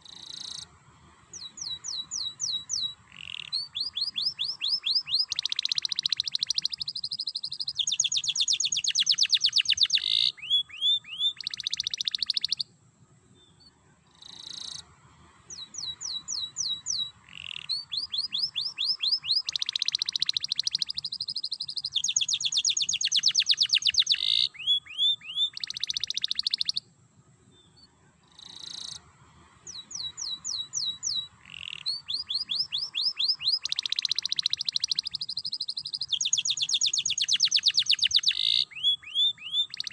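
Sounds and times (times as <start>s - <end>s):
canary singing trills: 1.3s - 12.8s, 15.5s - 26.9s, 29.6s - 39.9s.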